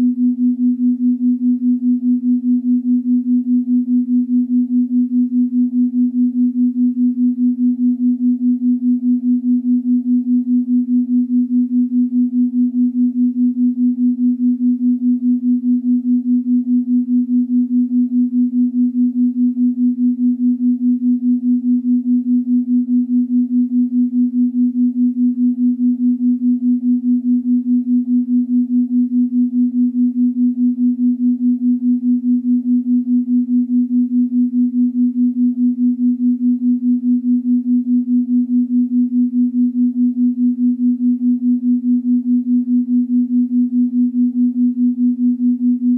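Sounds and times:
pulsing low electronic tone: 0.0s - 45.9s.

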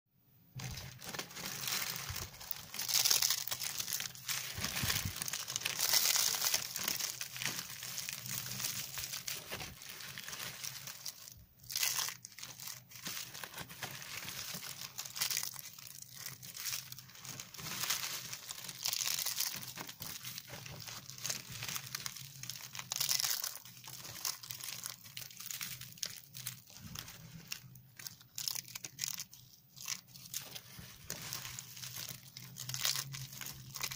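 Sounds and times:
soap shavings crunching: 0.7s - 33.9s.

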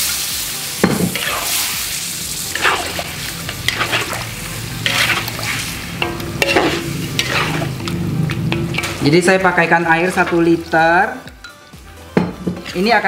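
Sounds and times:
meat sizzling in a wok: 0.0s - 11.3s
spatula scraping a wok: 1.0s - 9.2s, 12.4s - 13.0s.

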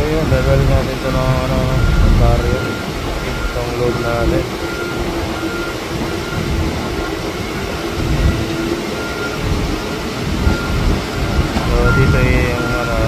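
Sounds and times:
heavy vehicle engines rumbling: 0.0s - 13.0s
faint short beeps: 10.5s - 13.0s.

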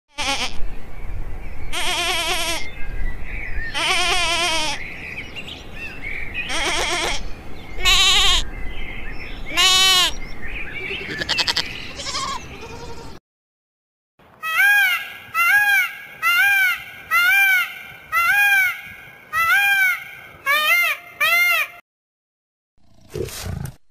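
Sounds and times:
goat bleating: 0.1s - 0.6s, 1.7s - 2.7s, 3.8s - 4.8s, 6.5s - 7.2s, 7.8s - 8.5s, 9.5s - 10.2s, 10.8s - 13.2s.

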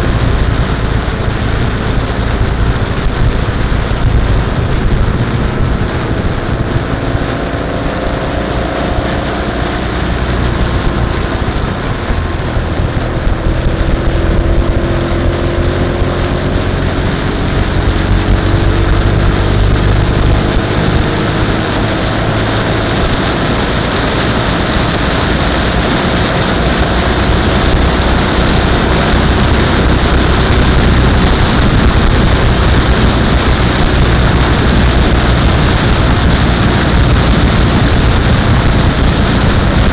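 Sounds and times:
motorcycle engine drone: 0.0s - 39.9s
road noise on wet road: 0.0s - 39.9s
wind rushing: 0.0s - 39.9s.

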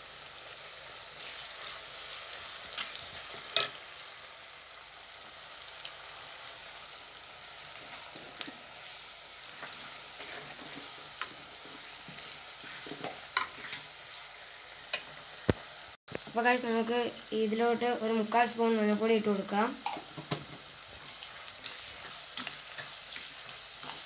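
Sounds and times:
onions sizzling in hot oil: 0.0s - 24.0s
steel spoon clinking on pot: 3.6s - 3.8s.

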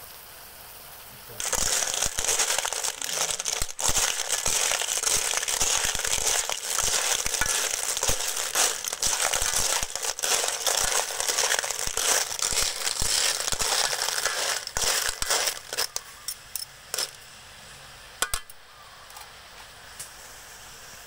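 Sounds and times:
sizzling in a wok: 0.0s - 21.0s
shells clattering: 1.4s - 16.0s, 17.0s - 17.2s
metal spoon scraping wok: 1.4s - 17.2s.

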